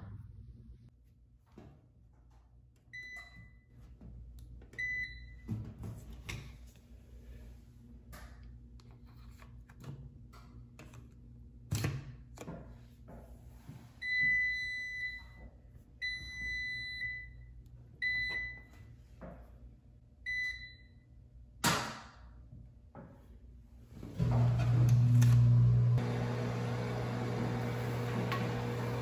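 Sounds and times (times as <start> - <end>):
washer control panel beeping: 2.9 - 3.6, 4.7 - 5.5, 14.0 - 15.4, 16.0 - 17.4, 18.0 - 18.8, 20.2 - 20.9.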